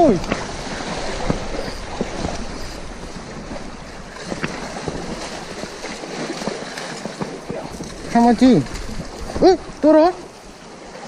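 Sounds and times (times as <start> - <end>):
sea surf washing: 0.0 - 11.0
wind buffeting microphone: 0.0 - 11.0.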